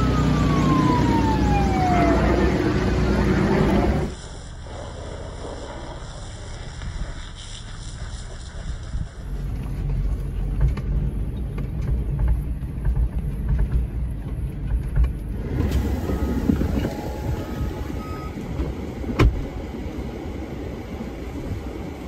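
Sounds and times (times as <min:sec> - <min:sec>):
outdoor noise: 0:00.0 - 0:22.0
truck engine rumble: 0:00.0 - 0:22.0
knocks and rattles from bumps: 0:10.5 - 0:15.3.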